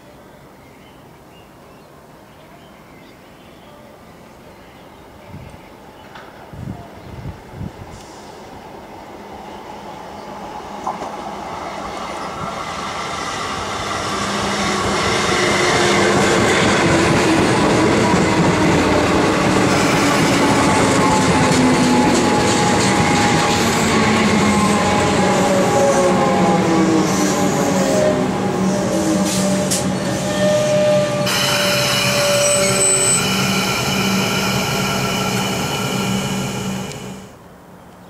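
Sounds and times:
train wheel and rail noise: 3.8s - 38.0s
traction motors whining: 29.2s - 37.3s.

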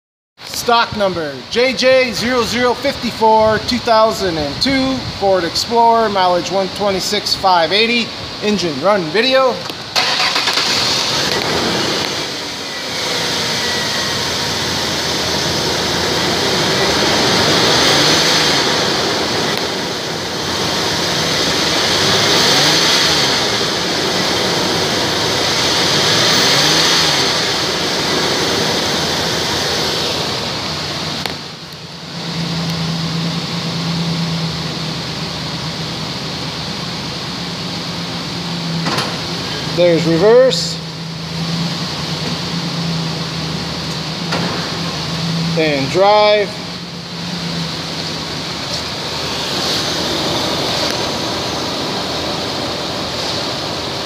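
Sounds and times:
car engine revving: 1.4s - 54.0s.

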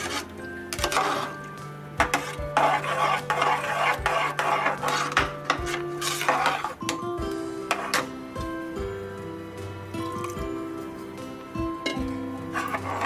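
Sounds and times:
metal ladle stirring rice in pot: 0.0s - 1.4s, 2.0s - 7.0s, 11.9s - 13.0s
soft background music: 0.0s - 13.0s.

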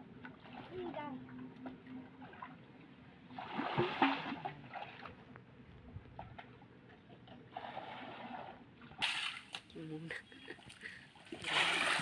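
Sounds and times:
muddy water splashing: 3.3s - 5.2s, 7.2s - 12.0s.

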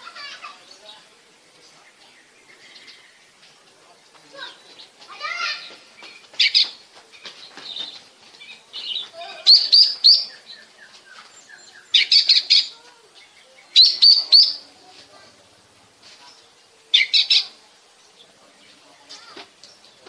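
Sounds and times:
bird chirps and twitters: 4.4s - 14.7s, 16.2s - 20.0s
bird whistling song: 8.8s - 12.7s, 13.6s - 14.6s.

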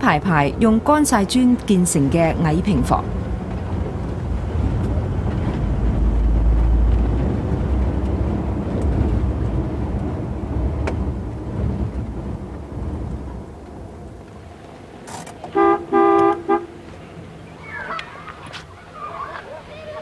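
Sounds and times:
uneven low rumble: 0.0s - 14.5s.

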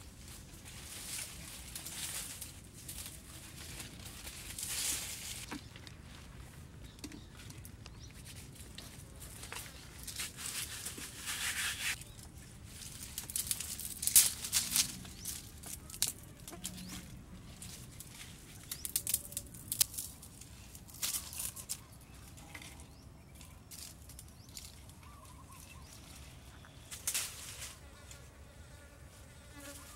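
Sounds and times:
twigs and leaves rustling: 0.0s - 28.2s
wood fire crackling: 17.9s - 20.4s.

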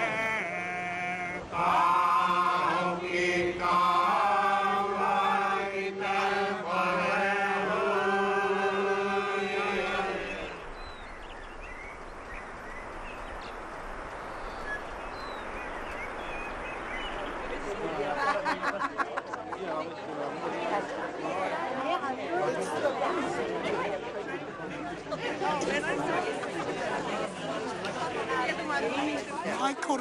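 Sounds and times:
voices chanting: 0.0s - 18.9s
steady hiss: 6.6s - 19.1s.

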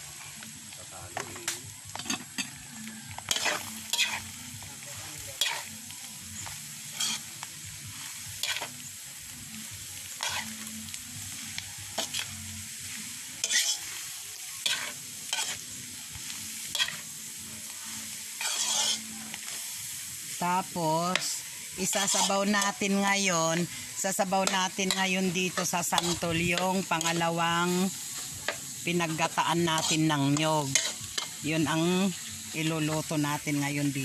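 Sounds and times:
food sizzling: 0.0s - 34.0s
metal spatula scraping wok: 1.2s - 8.8s, 10.2s - 10.6s, 12.0s - 12.4s, 13.4s - 19.6s, 21.1s - 33.2s.

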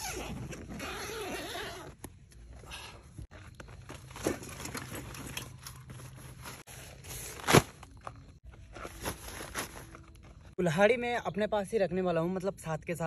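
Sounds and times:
rustling bags and tent fabric: 0.0s - 10.6s.

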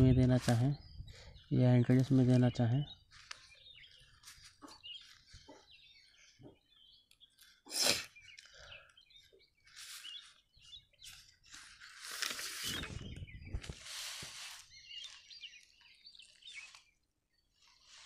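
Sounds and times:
faint bird chirps: 0.0s - 18.0s
paper page rustling: 11.0s - 15.7s.

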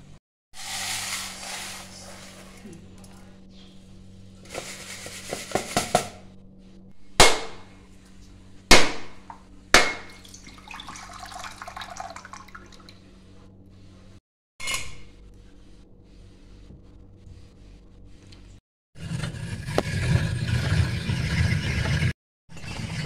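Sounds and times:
rice rustling in a pan: 0.6s - 3.0s, 4.4s - 6.0s
coconut being struck: 7.2s - 7.7s, 8.7s - 10.2s
water splashing into a bowl: 10.1s - 13.0s.

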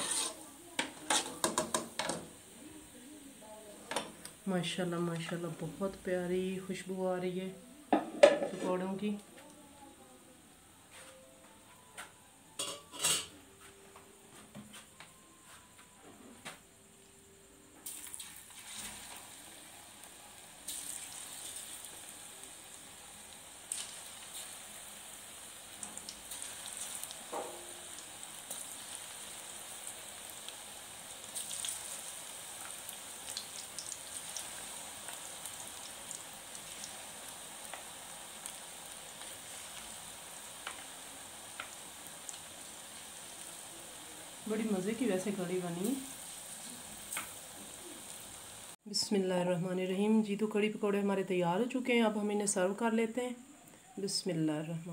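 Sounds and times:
batter sizzling in hot oil: 0.0s - 3.7s, 17.8s - 48.8s
metal utensil clinking on pan: 12.6s - 13.4s.

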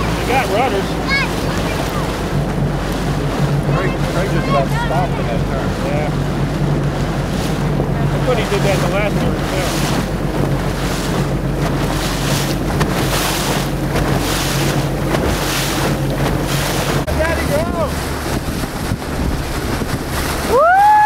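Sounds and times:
low motor drone: 0.0s - 21.0s
wind buffeting microphone: 0.0s - 21.0s.

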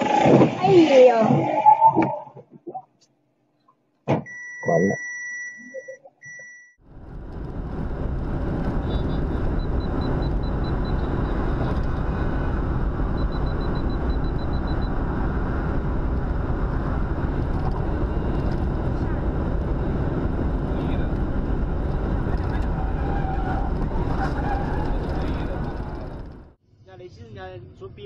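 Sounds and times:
electronic warning beep: 4.3s - 6.8s, 13.1s - 15.0s
car road and wind noise: 6.8s - 26.6s.

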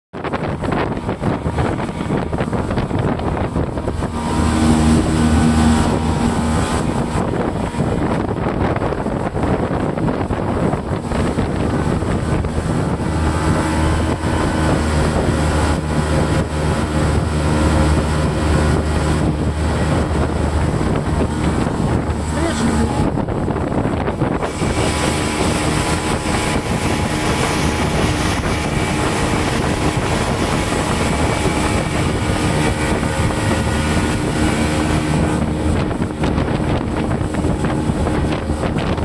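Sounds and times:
boat engine drone: 0.2s - 39.0s
wind buffeting microphone: 0.2s - 39.0s
steady rush of noise: 24.4s - 36.3s.

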